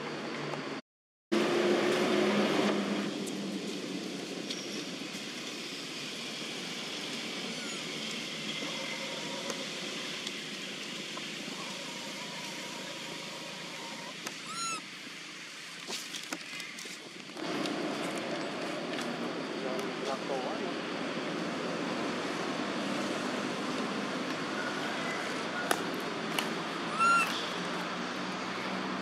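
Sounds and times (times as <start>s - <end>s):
outdoor background noise: 0.0s - 29.0s
bird chirps: 13.8s - 14.8s, 26.9s - 27.6s.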